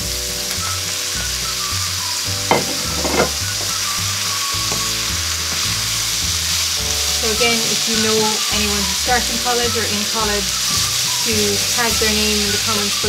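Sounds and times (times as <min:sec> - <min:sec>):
food sizzling in a wok: 0:00.0 - 0:13.0
wooden spoon clunking: 0:02.5 - 0:03.8.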